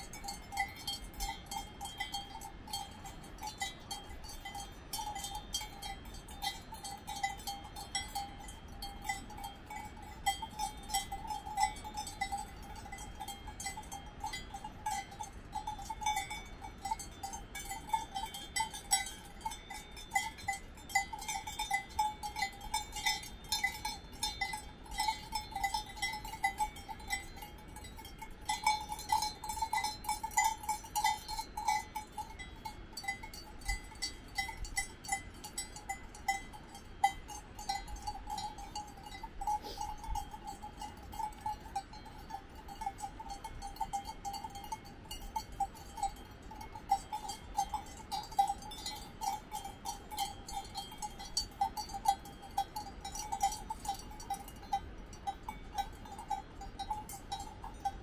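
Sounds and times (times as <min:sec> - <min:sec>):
cowbells clanking: 0:00.0 - 0:58.0.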